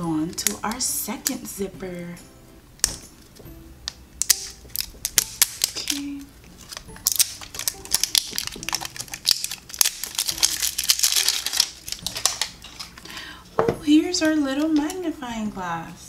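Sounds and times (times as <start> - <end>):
plastic wrapping crinkling and tearing: 4.2 - 13.3.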